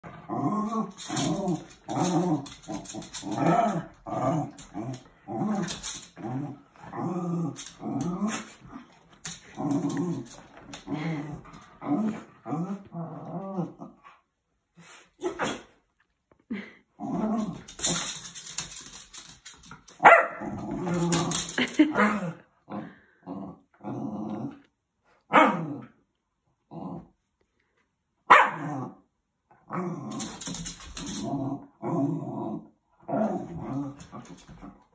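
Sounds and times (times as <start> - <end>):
small dogs growling: 0.0 - 14.0, 20.4 - 24.7, 29.7 - 34.8.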